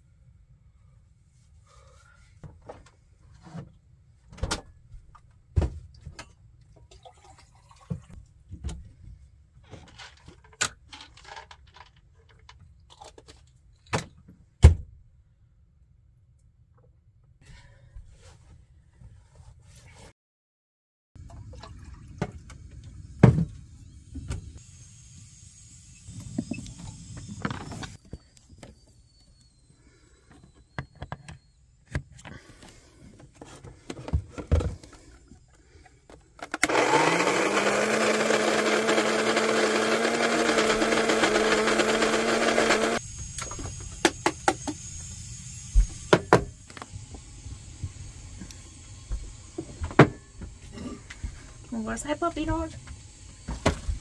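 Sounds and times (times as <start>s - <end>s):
kitchen appliance motor running: 36.4s - 54.0s.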